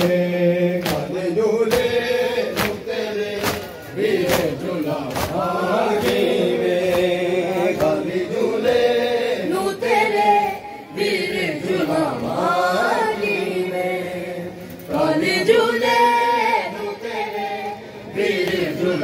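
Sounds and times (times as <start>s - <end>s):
men chanting a lament: 0.0s - 19.0s
hands slapping bare chests: 0.8s - 1.1s, 1.7s - 7.2s.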